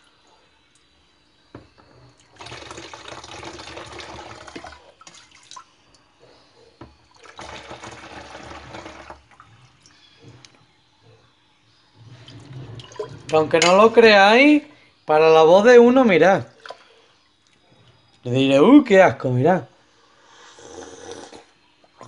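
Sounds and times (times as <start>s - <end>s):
liquid pouring into plastic bottle: 2.3s - 5.6s, 7.2s - 9.4s.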